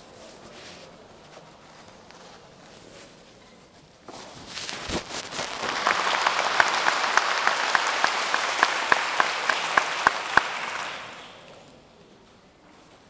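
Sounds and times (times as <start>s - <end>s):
audience applauding: 5.2s - 11.7s
person clapping close by: 5.3s - 11.7s.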